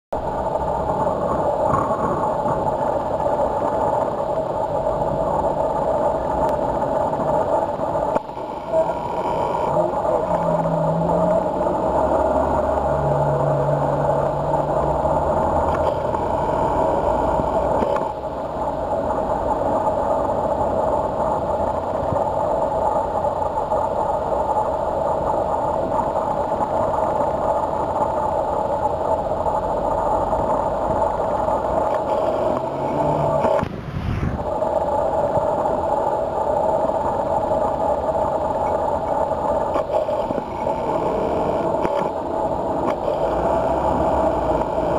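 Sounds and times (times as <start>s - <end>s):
steady hum: 0.1s - 44.9s.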